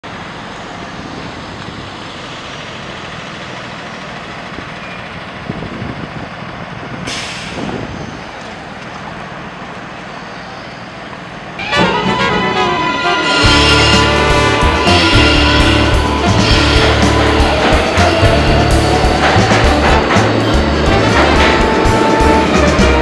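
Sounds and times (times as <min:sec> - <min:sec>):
city street traffic: 0:00.0 - 0:23.0
music: 0:11.6 - 0:23.0.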